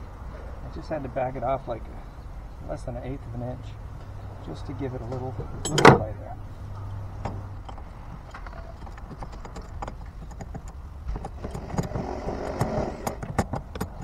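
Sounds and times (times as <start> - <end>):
hand tools clicking on metal: 7.6 - 14.0.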